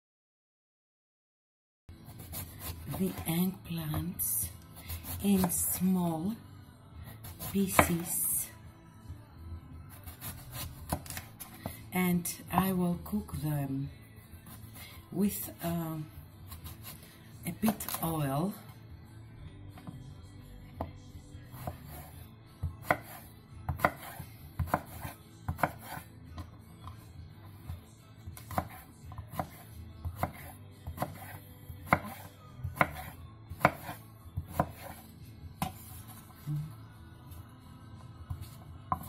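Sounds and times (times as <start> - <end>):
knife chopping on wooden board: 7.2 - 8.1, 10.0 - 11.8, 22.7 - 27.0, 28.4 - 35.0, 35.6 - 36.0, 38.3 - 39.0.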